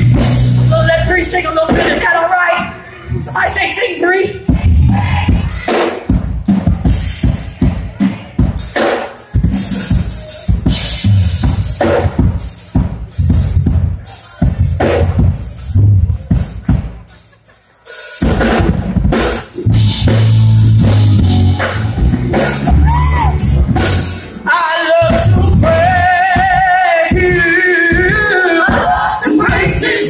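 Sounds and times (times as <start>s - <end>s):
drum kit playing: 0.0s - 2.6s, 3.3s - 30.0s
live band music: 0.0s - 30.0s
person singing: 22.4s - 30.0s.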